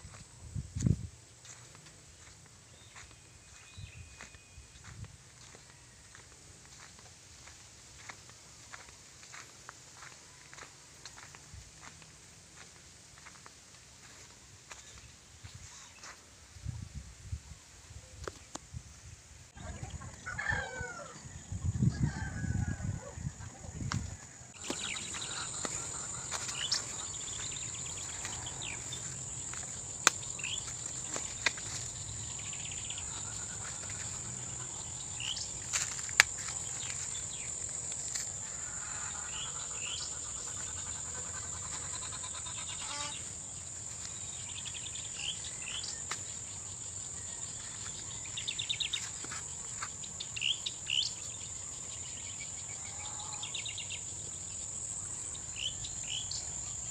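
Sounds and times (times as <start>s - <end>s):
high-pitched insect chorus: 20.4s - 56.9s.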